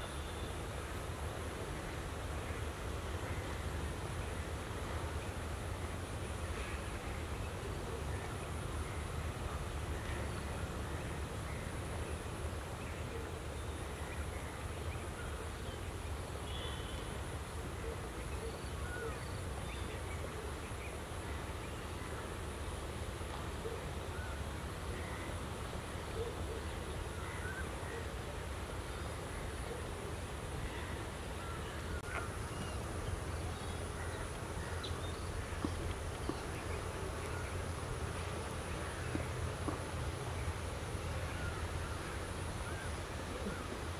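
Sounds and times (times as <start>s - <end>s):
faint bird calls: 16.4s - 17.2s, 26.0s - 43.8s.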